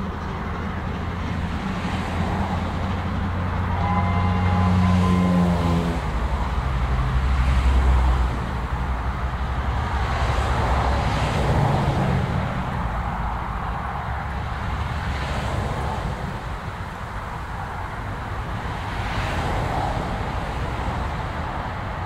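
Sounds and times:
steam locomotive exhaust rumble: 0.0 - 22.0.

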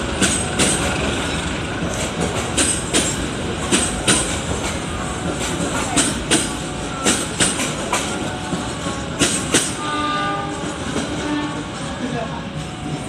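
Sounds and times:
train wheels clacking over joints: 0.0 - 11.8
train rolling rumble: 0.0 - 13.0.

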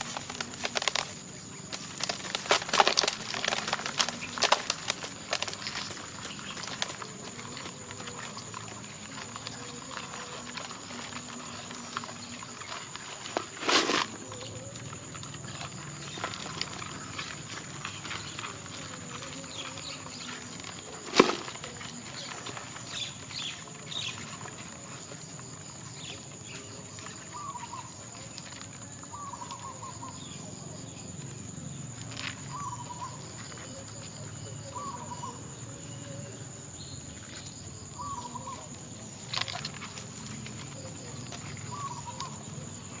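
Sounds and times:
handling knocks and rustles: 0.0 - 25.2.

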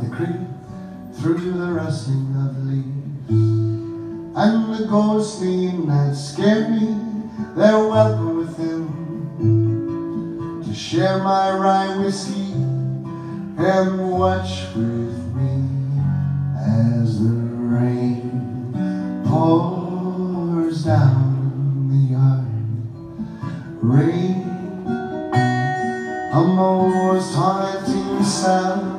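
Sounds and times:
acoustic guitar strumming: 0.0 - 28.9
person singing: 4.4 - 9.6, 10.6 - 28.9.

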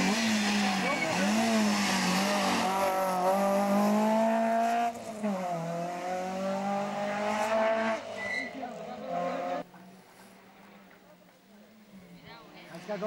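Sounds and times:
rally car engine revving hard: 0.0 - 9.6.

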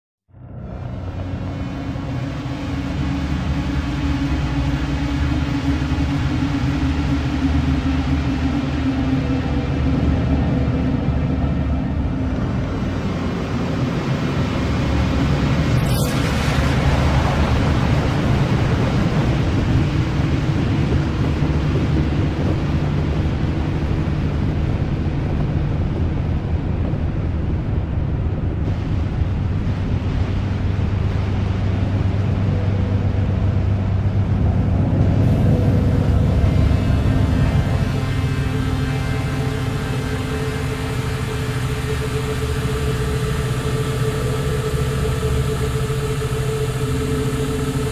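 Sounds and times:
dark ambient drone: 0.3 - 47.9
high sweep: 0.6 - 27.7.

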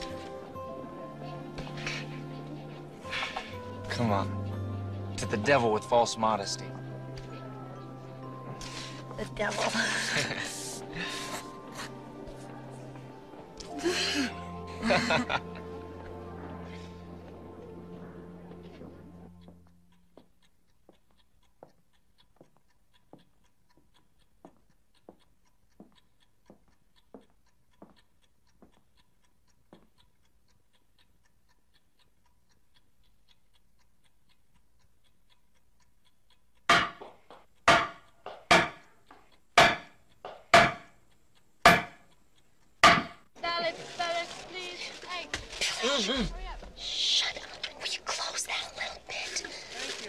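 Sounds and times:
faint regular ticks: 0.0 - 4.9, 16.0 - 50.0
knife chopping on wooden board: 36.7 - 38.8, 39.6 - 40.9, 41.7 - 42.0, 42.8 - 43.2.

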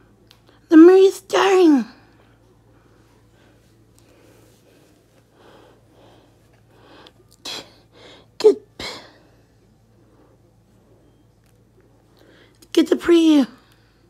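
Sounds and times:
person sneezing: 8.4 - 9.2.

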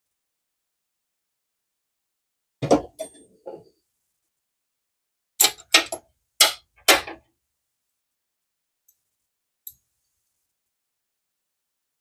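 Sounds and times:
tools clicking and knocking: 5.4 - 7.2.

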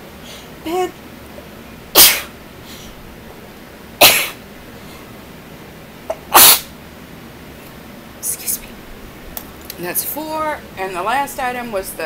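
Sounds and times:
woman sneezing: 2.0 - 2.3, 4.0 - 4.4, 6.2 - 6.7.

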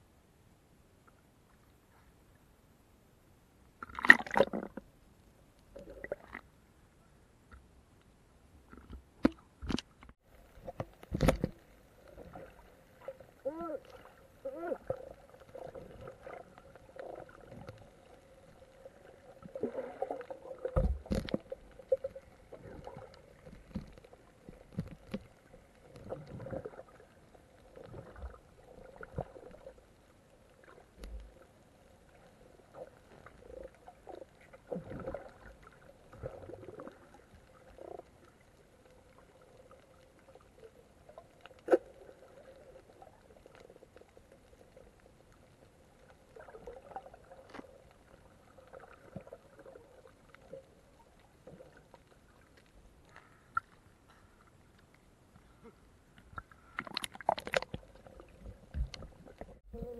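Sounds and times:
faint steady hum: 0.0 - 59.9
underwater gurgles and bubbling: 3.8 - 5.0, 5.7 - 6.5, 10.3 - 54.6, 55.4 - 59.9.

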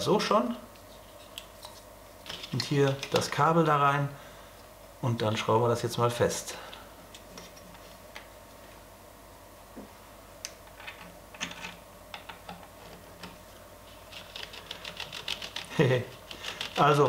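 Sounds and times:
plastic parts being handled: 1.1 - 3.4.

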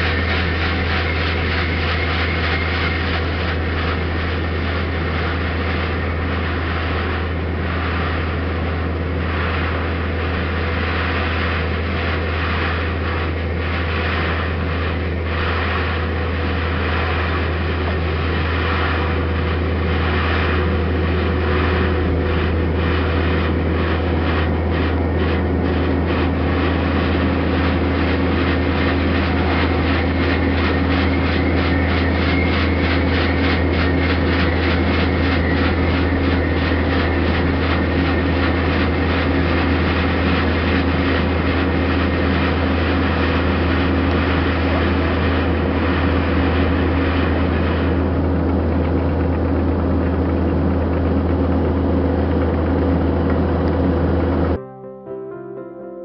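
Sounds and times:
heavy machinery engine running: 0.0 - 54.6
steady higher tone: 54.4 - 56.0.

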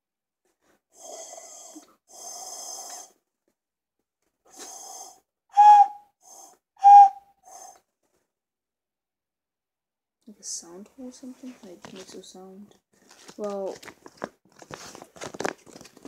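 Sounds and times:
breathy ocarina blows: 5.5 - 7.8
ocarina notes: 5.6 - 6.0, 6.8 - 7.2.

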